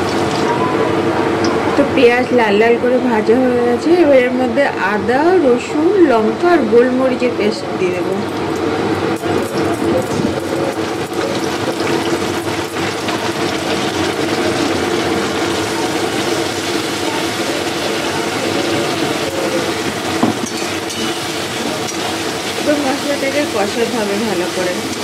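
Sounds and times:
hot oil sizzling: 0.0 - 1.9, 8.2 - 25.0.

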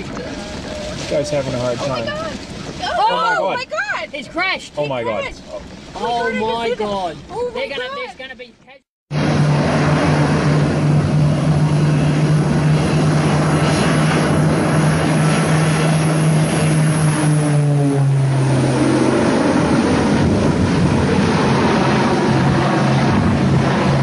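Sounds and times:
propeller aircraft passing low: 9.1 - 24.0.

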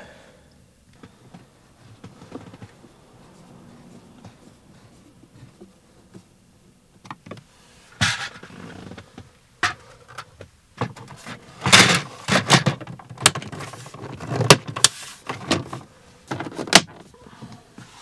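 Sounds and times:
plastic clicks and knocks: 8.9 - 17.1.

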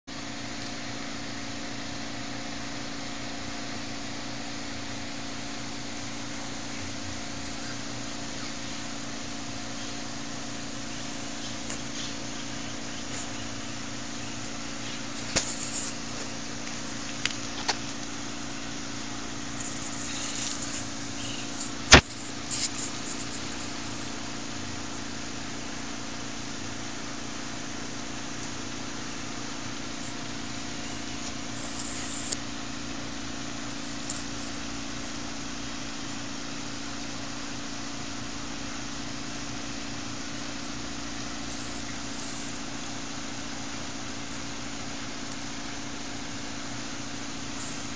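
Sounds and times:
machine humming: 0.1 - 47.9
sharp clicks: 19.6 - 23.8.

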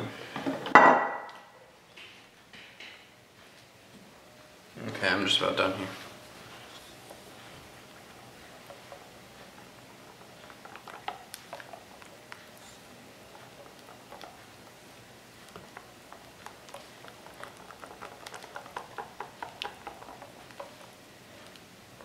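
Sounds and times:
whisk beating batter in metal bowl: 7.0 - 22.0.

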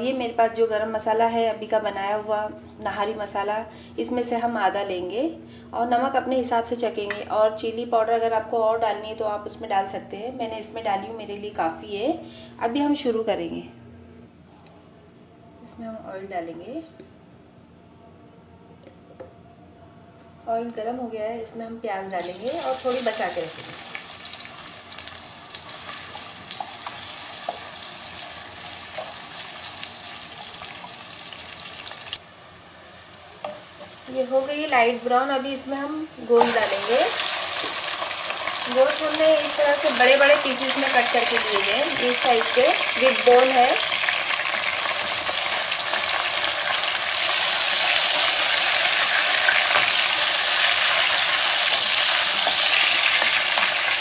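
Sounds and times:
onions sizzling in oil: 22.2 - 54.0.

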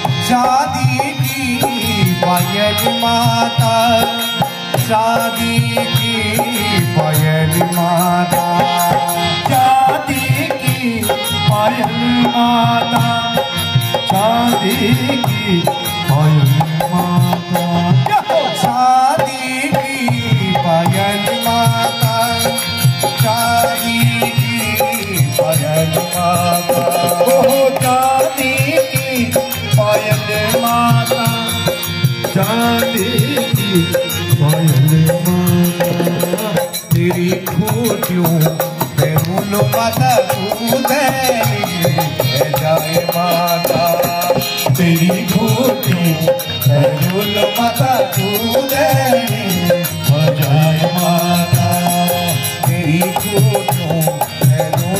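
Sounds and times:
dholak drum beat: 0.0 - 54.9
harmonium melody: 0.0 - 54.9.

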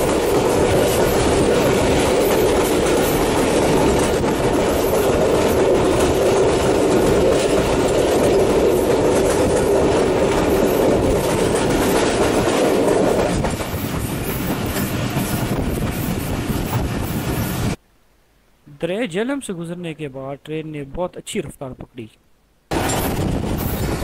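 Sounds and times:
train wheels rumbling on rails: 0.0 - 17.8, 22.7 - 24.0.

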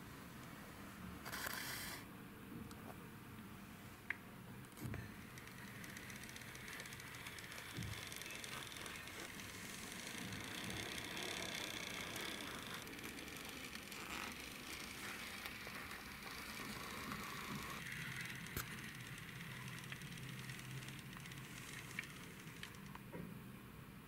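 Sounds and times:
toy car wheels rolling on wood: 4.8 - 23.0.

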